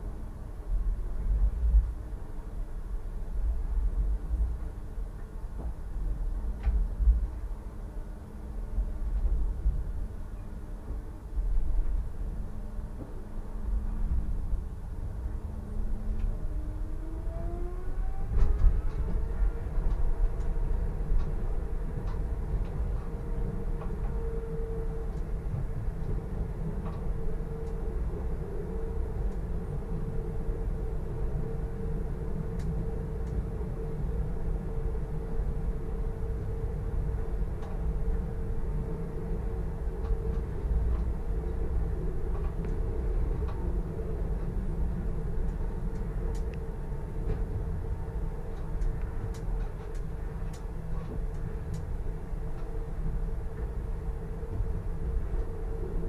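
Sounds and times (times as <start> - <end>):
wheels rumbling on rail: 0.0 - 56.0
light ticks: 22.0 - 23.1, 26.8 - 27.8, 42.3 - 42.8, 45.4 - 47.5, 48.5 - 51.9, 52.5 - 52.8.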